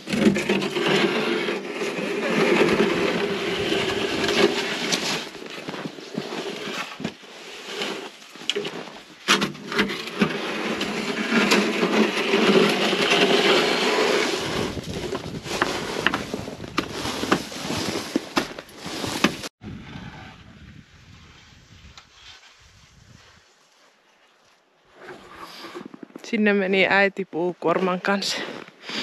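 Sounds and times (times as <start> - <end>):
snow shovel scraping snow: 0.0 - 19.5
quiet outdoor background: 0.0 - 29.0.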